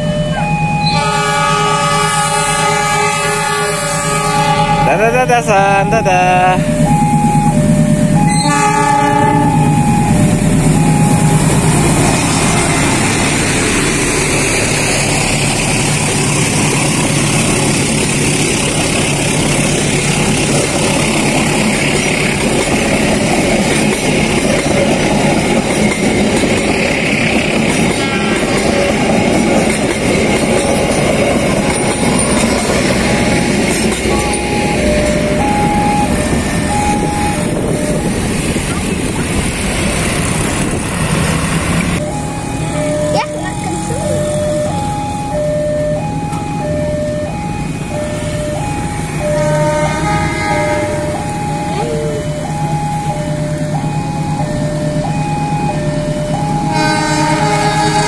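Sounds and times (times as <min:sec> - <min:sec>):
crossing warning bell: 0:00.0 - 0:58.0
train wheels rumbling on rails: 0:00.0 - 0:58.0
train horn blast: 0:00.8 - 0:05.2, 0:08.2 - 0:10.1, 0:27.9 - 0:29.1, 0:49.2 - 0:52.2, 0:56.6 - 0:58.0.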